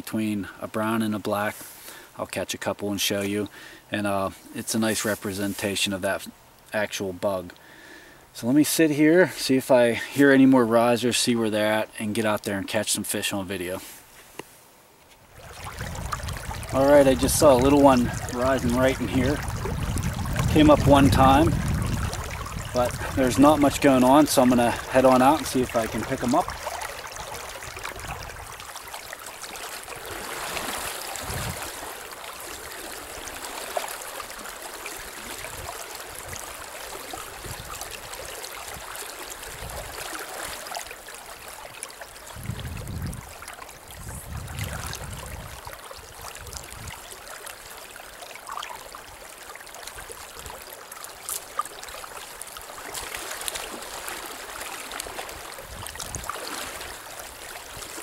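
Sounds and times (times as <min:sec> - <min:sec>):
river water flowing over riffle: 0:15.2 - 0:58.0.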